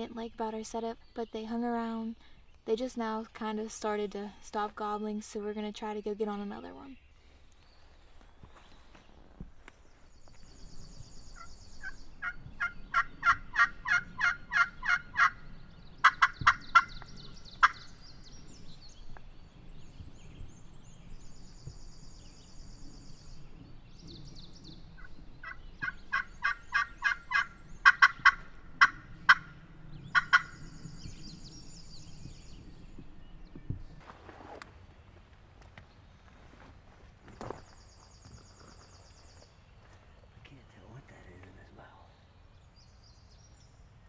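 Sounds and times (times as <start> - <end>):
songbird trills: 0.0 - 34.0, 37.2 - 44.0
turkey call yelps: 11.4 - 15.4, 16.0 - 16.9, 17.6 - 17.9, 25.4 - 30.6.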